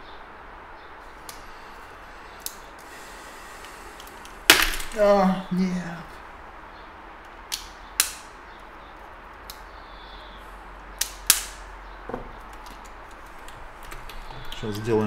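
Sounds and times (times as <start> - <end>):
desk clicks and taps: 12.1 - 14.6.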